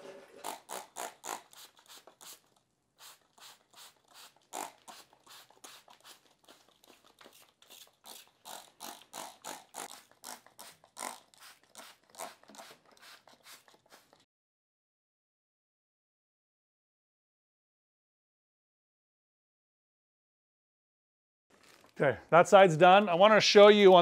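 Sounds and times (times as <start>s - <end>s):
spray bottle squirts hissing: 0.4s - 14.2s.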